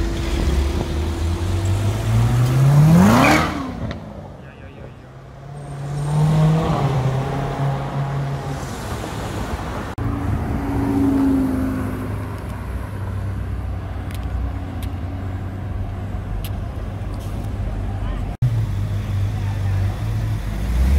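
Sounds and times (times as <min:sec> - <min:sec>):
sports car engine revving: 0:00.0 - 0:04.2, 0:05.2 - 0:08.5
traffic noise: 0:00.0 - 0:20.9.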